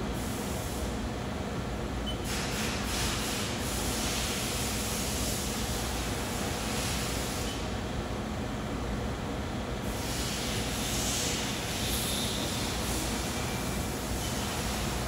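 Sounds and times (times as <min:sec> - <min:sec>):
machine mechanical hum: 0:00.0 - 0:15.0
machine hiss: 0:02.2 - 0:07.6, 0:09.8 - 0:15.0.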